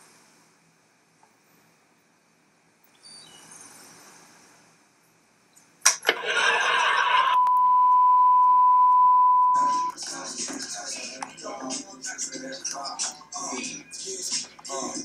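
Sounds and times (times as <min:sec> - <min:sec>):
burst of static noise: 0:05.9 - 0:07.5
high-pitched beep tone: 0:07.3 - 0:09.9.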